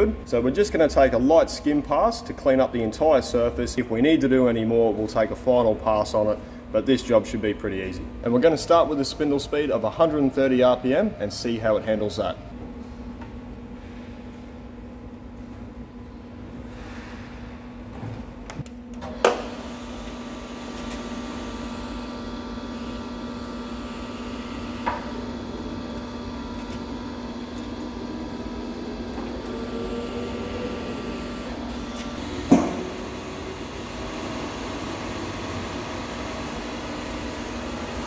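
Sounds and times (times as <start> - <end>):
machine hum: 0.0 - 38.0
sharp clunks: 32.5 - 32.9.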